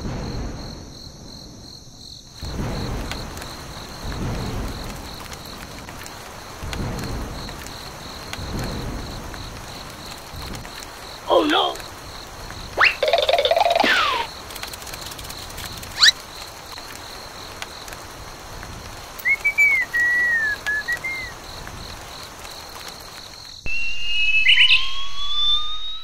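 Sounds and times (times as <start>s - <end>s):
cartoon upward zip: 12.8s - 14.3s, 23.7s - 26.0s
whistled phrase: 12.8s - 14.3s, 19.2s - 21.3s, 23.7s - 26.0s
long rising whistle glide: 23.7s - 26.0s.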